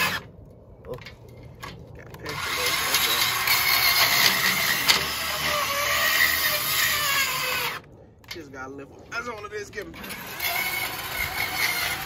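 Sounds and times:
bandsaw cutting metal: 0.0 - 0.3, 2.2 - 7.9, 9.8 - 12.0.

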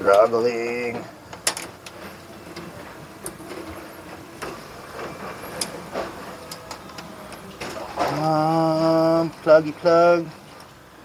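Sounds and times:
wires rustling and scraping: 0.0 - 11.0.

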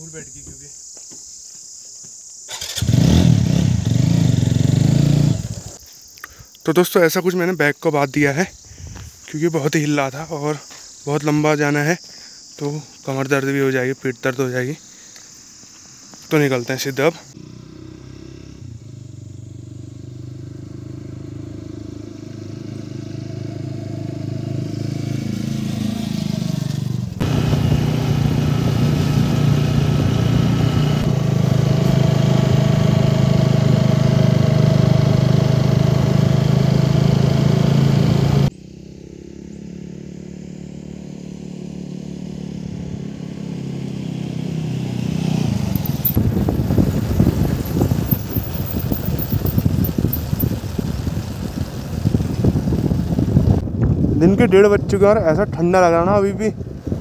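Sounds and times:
motorcycle engine: 2.5 - 5.8, 17.3 - 54.0.

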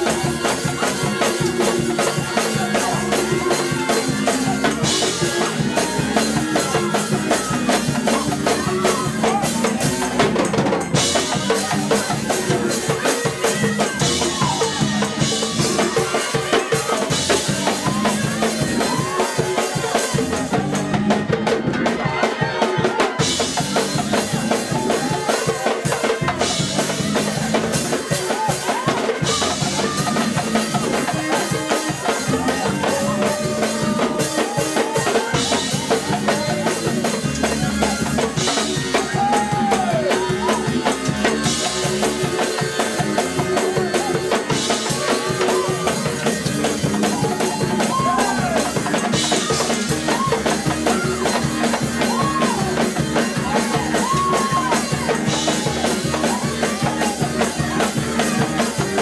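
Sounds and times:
drum kit beat: 0.0 - 59.0
voices singing: 0.0 - 59.0.

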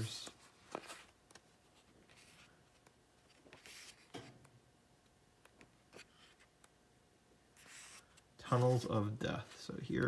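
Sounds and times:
book pages turning: 0.0 - 4.2, 7.6 - 10.0.

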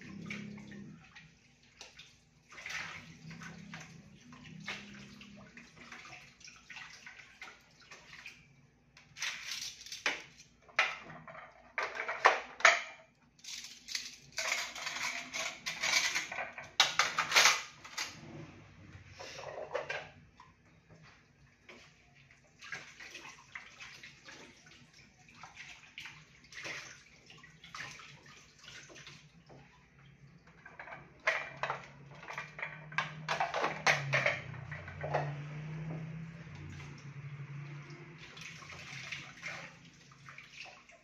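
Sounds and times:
tap water running and splashing: 0.0 - 11.1, 19.8 - 41.0
plastic dishes knocking together: 10.0 - 13.0, 14.4 - 18.0, 30.5 - 35.6.

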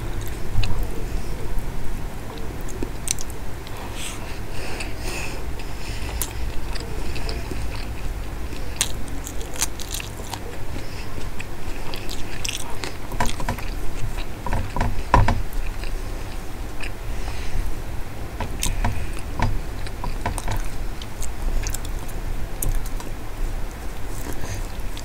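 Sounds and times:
chewing and mouth clicks: 2.3 - 14.8, 18.4 - 25.0.

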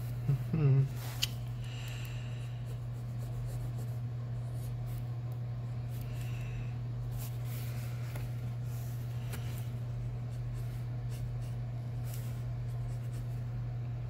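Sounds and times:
steady low hum: 0.0 - 14.0
pencil scratching on paper: 2.6 - 5.0.

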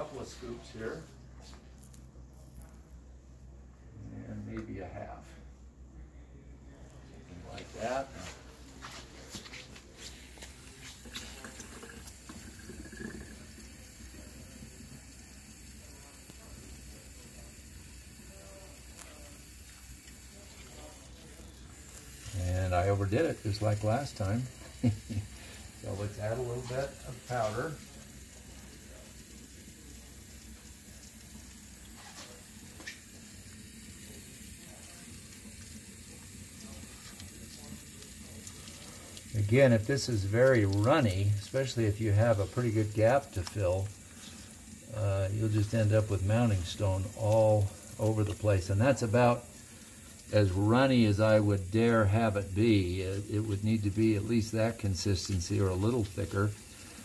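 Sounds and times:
water running into steel sink: 10.0 - 57.0.

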